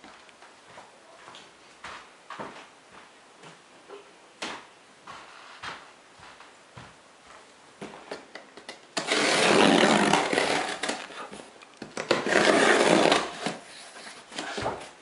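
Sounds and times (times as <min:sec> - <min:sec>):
hands scraping cardboard box: 0:09.0 - 0:11.4, 0:12.0 - 0:15.0.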